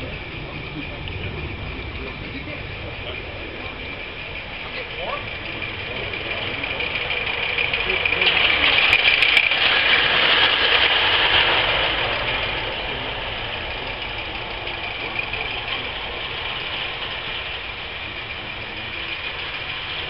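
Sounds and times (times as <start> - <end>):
steam locomotive hissing: 0.0 - 20.0.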